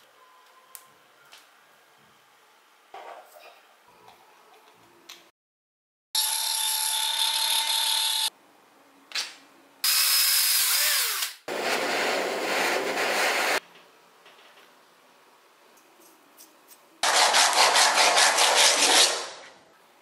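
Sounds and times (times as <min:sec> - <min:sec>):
electric drill running: 0:06.2 - 0:08.3.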